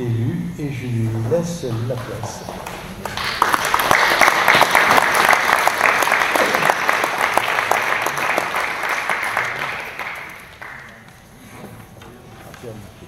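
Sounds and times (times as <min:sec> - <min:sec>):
crowd applauding: 0:02.4 - 0:11.1.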